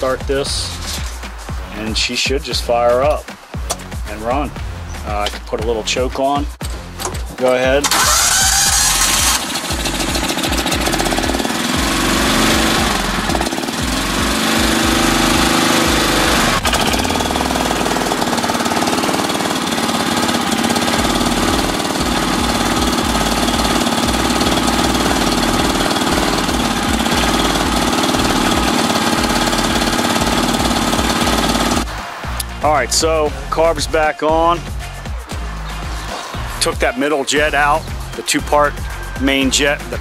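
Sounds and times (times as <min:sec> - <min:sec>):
engine idling: 0:07.0 - 0:33.7.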